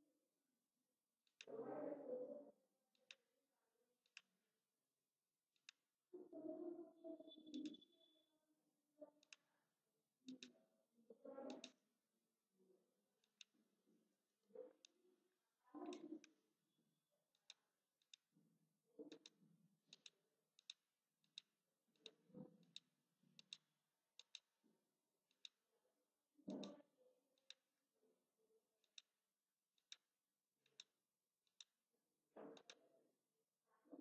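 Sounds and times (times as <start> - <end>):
computer mouse clicking: 2.9 - 3.3, 4.0 - 4.3, 5.5 - 5.8, 7.4 - 7.9, 9.2 - 9.5, 10.3 - 10.6, 11.4 - 11.8, 13.2 - 13.6, 14.7 - 15.0, 15.8 - 16.4, 17.3 - 18.3, 19.0 - 24.6, 25.3 - 25.6, 26.5 - 27.7, 28.8 - 29.1, 29.7 - 31.8, 32.4 - 32.9.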